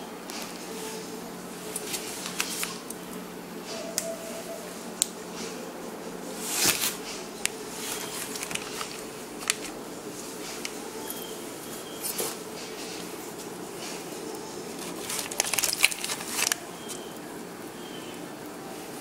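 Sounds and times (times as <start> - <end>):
steady low hum: 0.0 - 19.0
plastic bags crinkling and rustling: 0.3 - 3.0, 6.2 - 18.2.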